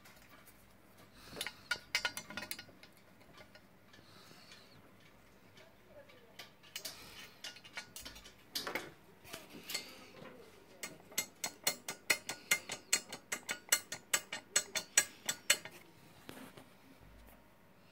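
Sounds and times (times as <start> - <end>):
small metallic clicks: 1.3 - 8.9, 10.8 - 15.8.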